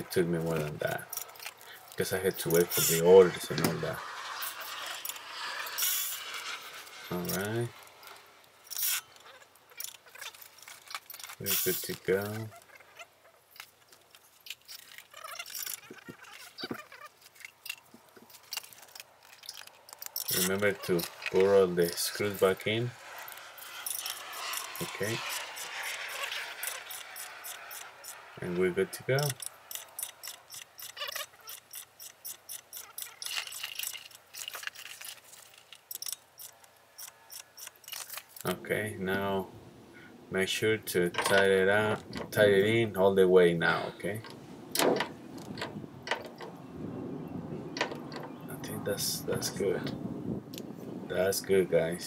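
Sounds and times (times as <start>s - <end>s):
metal hand tools clinking: 14.4s - 22.4s, 23.0s - 28.4s, 29.2s - 38.5s
socket ratchet clicking: 23.8s - 28.2s, 29.3s - 34.6s, 35.8s - 38.4s.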